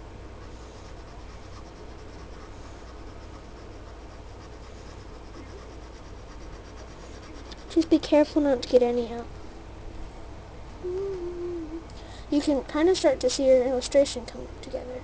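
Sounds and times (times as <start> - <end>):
steady low hum: 0.0 - 15.0
marker scratching on paper: 0.4 - 8.8.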